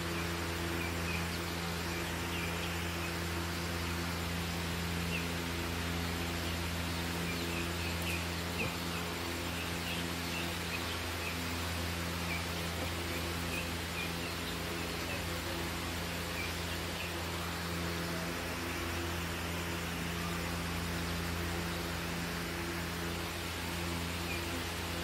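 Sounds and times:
chicks peeping: 0.0s - 19.8s
low mechanical hum: 0.0s - 25.0s.

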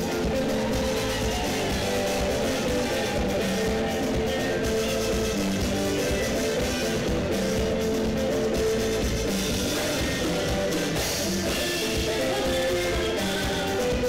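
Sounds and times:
bass guitar: 0.0s - 14.0s
drum kit: 0.0s - 14.0s
guitar: 0.0s - 14.0s.

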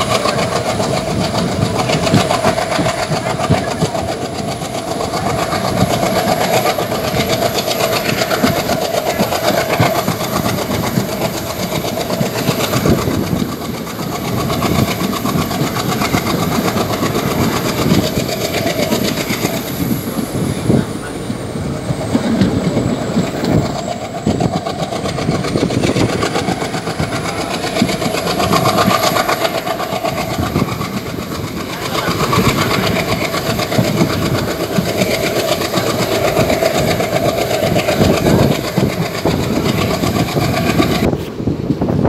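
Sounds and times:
train wheels on rails: 0.0s - 42.0s.

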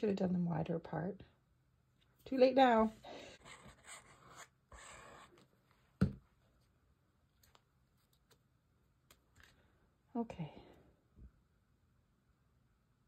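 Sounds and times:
paper card rustling and scraping: 3.3s - 5.5s.

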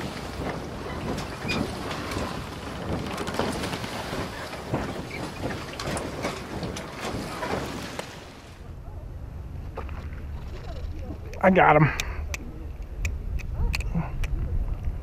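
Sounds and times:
water wash: 0.0s - 15.0s.

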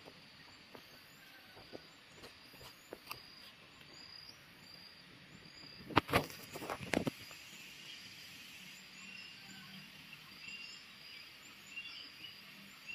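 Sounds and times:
faint steady hiss: 0.0s - 12.9s
insects chirping: 0.0s - 12.9s.

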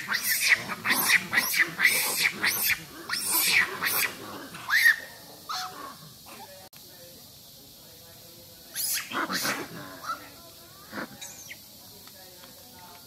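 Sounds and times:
macaques screaming: 0.0s - 6.5s, 8.7s - 11.6s.

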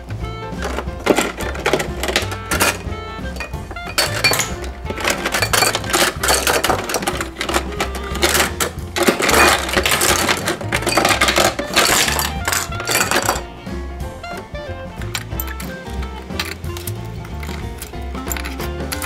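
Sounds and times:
background music with bass: 0.0s - 19.0s
plastic toys clattering: 0.0s - 19.0s.

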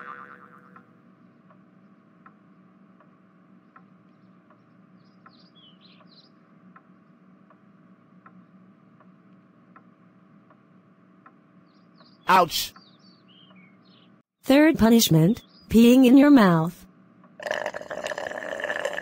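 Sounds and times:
bird chirps: 3.6s - 6.4s, 11.6s - 14.2s.

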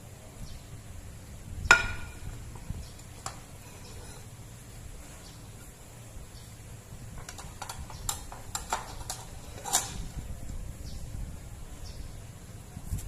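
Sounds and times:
plate clicking on steel tray: 7.2s - 10.0s.

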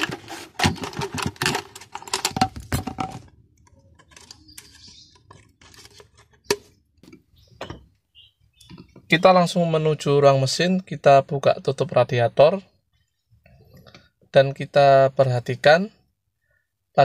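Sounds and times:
plastic crackling: 0.0s - 6.7s
clicks of plastic handling: 0.0s - 7.3s.

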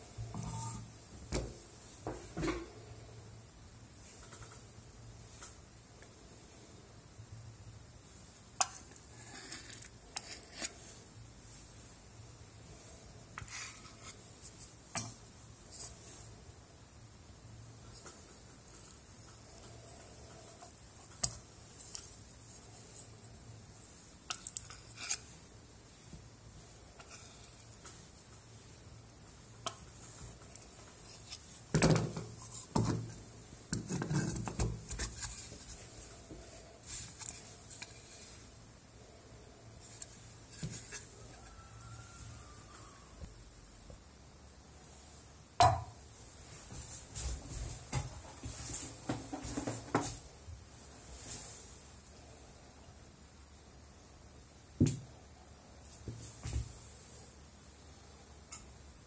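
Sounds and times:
plastic parts knocking and rubbing: 29.6s - 38.4s, 47.2s - 50.2s.

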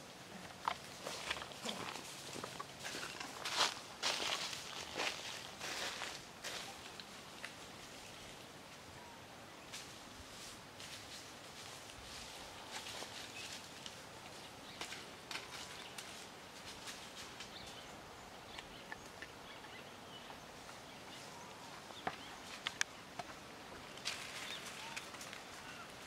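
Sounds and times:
dry leaves crackling: 0.3s - 8.4s, 9.7s - 17.9s, 23.8s - 26.0s
animal rustling dry leaves: 0.5s - 8.6s, 9.7s - 17.9s, 23.8s - 26.0s.

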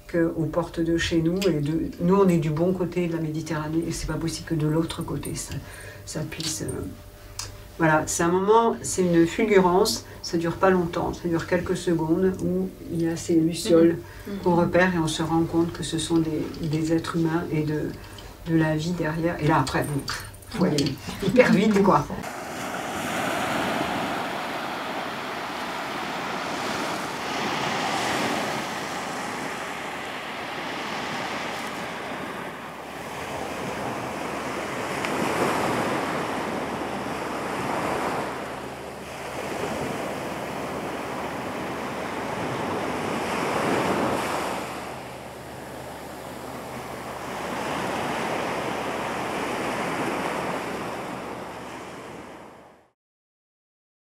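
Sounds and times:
waves breaking on a sandy beach: 22.2s - 52.7s.

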